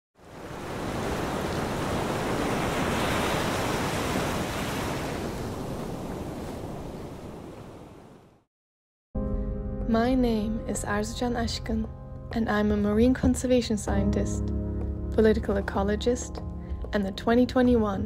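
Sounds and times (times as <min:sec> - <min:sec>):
surf washing over rocks: 0:00.2 - 0:08.2.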